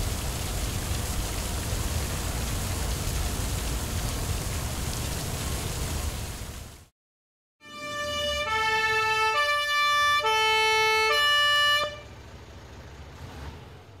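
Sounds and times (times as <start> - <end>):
two-tone fire truck siren: 7.6 - 12.2
low engine rumble: 8.0 - 14.0.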